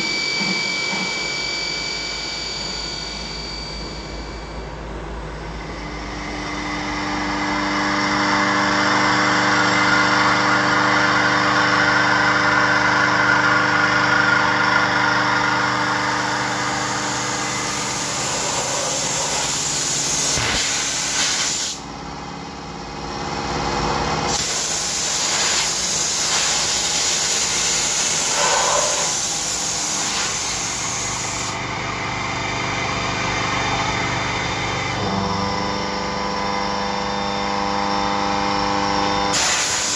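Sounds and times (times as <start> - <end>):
milling machine running: 0.0 - 21.1
coolant spray hiss: 19.0 - 21.8, 24.3 - 31.5, 39.4 - 39.9.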